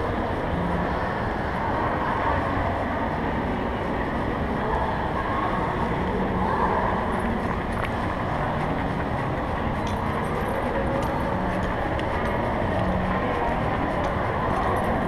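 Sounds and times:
chain leash clinking: 9.6 - 13.1.

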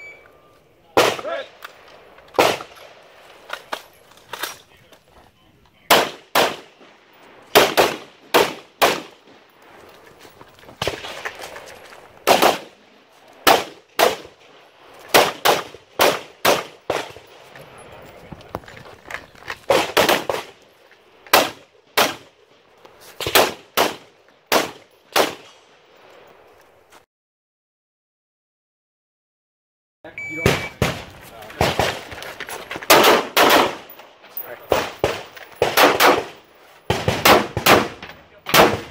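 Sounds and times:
rifle shots: 0.9 - 3.7, 5.9 - 9.6, 12.2 - 12.8, 13.4 - 17.5, 19.7 - 20.6, 21.2 - 22.4, 23.2 - 26.1, 30.4 - 32.2, 32.8 - 38.9.

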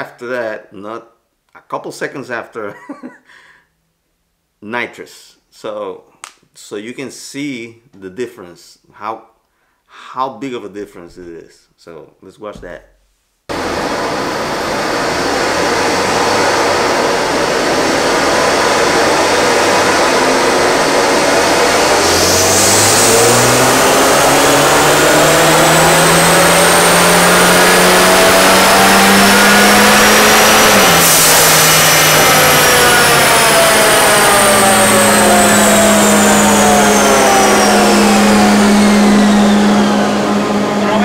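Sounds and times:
car engine roaring on dyno: 13.5 - 41.0
high whine: 13.5 - 41.0.

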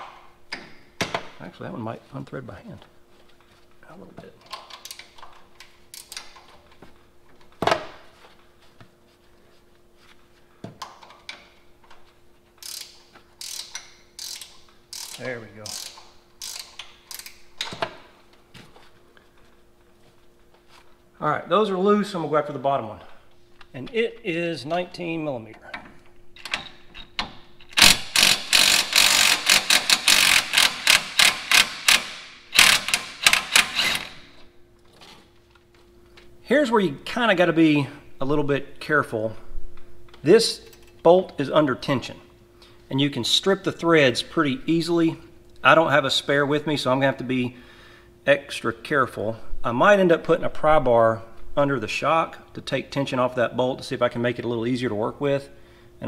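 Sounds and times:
faint hum: 0.1 - 56.0
ratchet wrench clicking: 12.6 - 17.4, 27.7 - 34.2.

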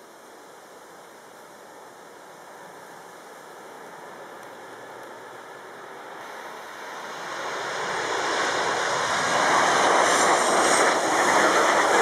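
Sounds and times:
high engine whine: 0.0 - 12.0
jet engines rushing: 3.7 - 12.0.

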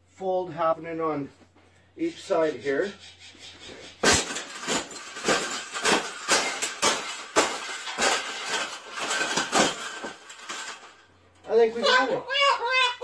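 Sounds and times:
wire cage crunched under boots: 4.0 - 11.1.

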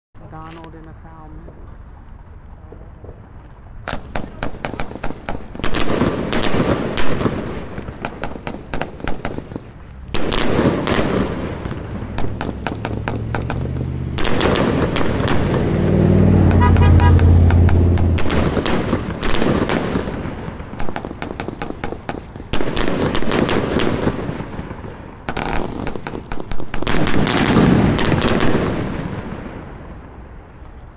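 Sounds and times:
firework crackling: 0.2 - 30.9
fireworks firing: 1.5 - 30.8
deep rumble: 9.5 - 19.2.

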